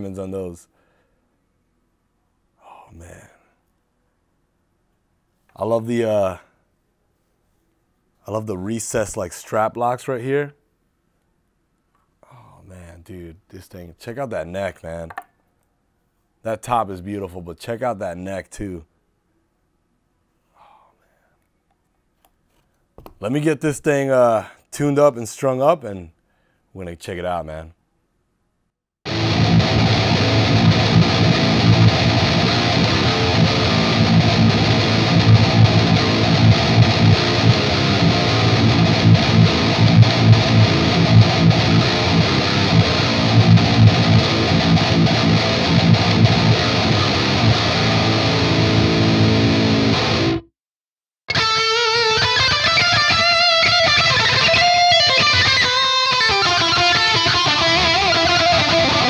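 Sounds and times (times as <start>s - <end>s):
electric guitar riff: 29.1s - 50.5s, 51.3s - 59.0s
electric guitar single notes: 29.1s - 50.5s, 51.3s - 59.0s.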